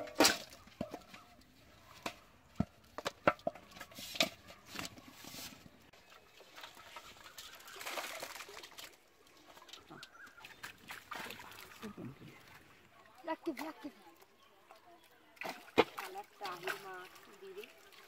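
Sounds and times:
fish tapping in metal basin: 0:00.0 - 0:01.4.

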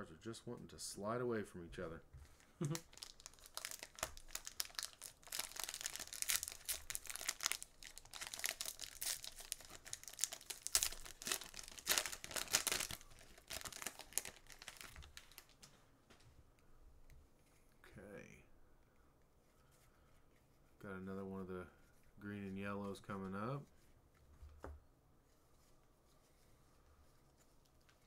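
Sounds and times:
plastic wrapper crinkling and tearing: 0:02.3 - 0:15.8.

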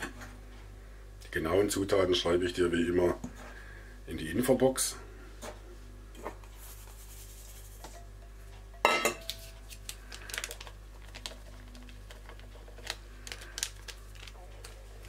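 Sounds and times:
metal bowls clinking: 0:08.7 - 0:09.3.

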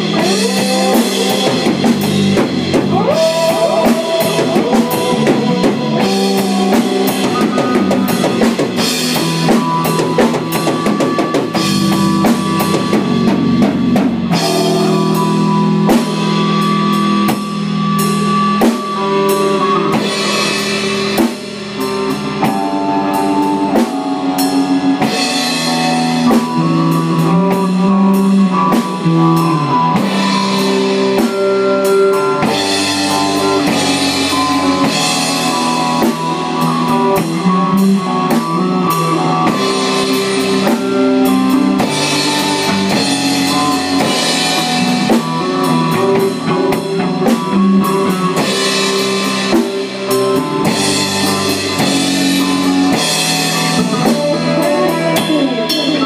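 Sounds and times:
drums playing steadily: 0:00.0 - 0:56.0
rock band jamming: 0:00.0 - 0:56.0.

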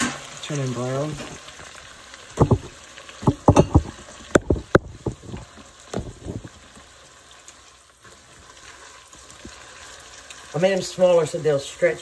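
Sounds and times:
meatballs sizzling in oil: 0:00.0 - 0:12.0
dull knocks and clunks: 0:02.4 - 0:06.6.

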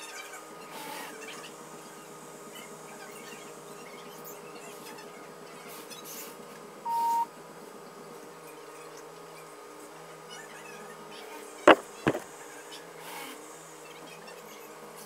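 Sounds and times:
short high beep: 0:06.9 - 0:07.3.

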